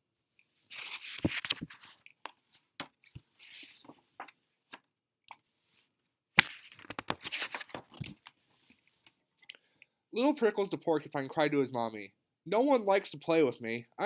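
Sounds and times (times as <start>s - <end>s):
paper rustling and crinkling: 0.6s - 4.4s, 5.8s - 8.8s
book pages turning: 0.6s - 9.0s
sharp paper snap: 6.4s - 7.8s.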